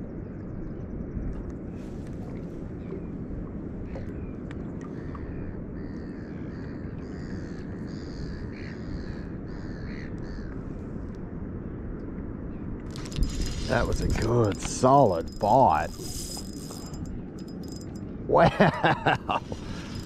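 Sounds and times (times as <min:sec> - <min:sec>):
steady low rush: 0:10.8 - 0:18.4.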